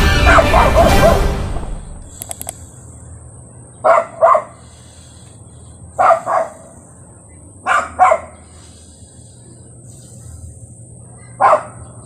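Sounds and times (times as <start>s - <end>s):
dog barking in short bursts: 3.8s - 4.6s, 6.0s - 6.6s, 7.7s - 8.4s, 11.4s - 11.8s.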